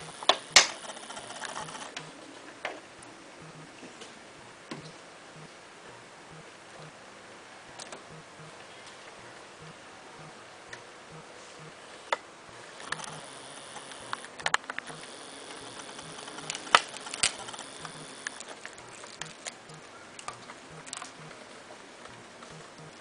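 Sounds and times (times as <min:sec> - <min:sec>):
faint regular ticking: 0:00.0 - 0:02.2, 0:09.6 - 0:23.0
plastic parts clicking: 0:13.8 - 0:21.4.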